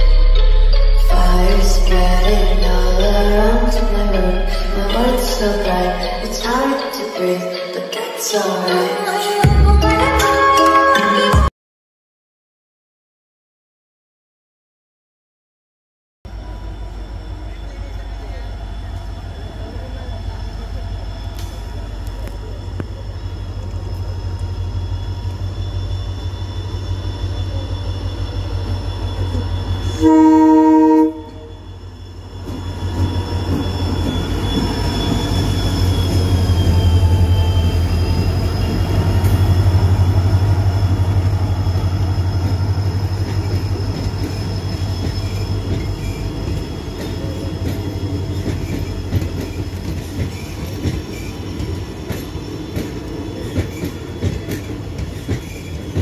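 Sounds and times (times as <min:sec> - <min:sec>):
diesel locomotive engine rumbling: 0:00.0 - 0:07.6, 0:16.3 - 0:56.0
train horn blast: 0:29.8 - 0:31.7
wheels clicking over rail joints: 0:41.7 - 0:56.0.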